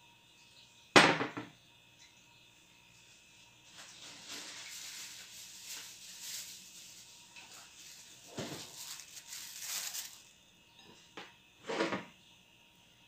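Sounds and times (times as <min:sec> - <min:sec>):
soft handling hiss: 0:02.9 - 0:10.4.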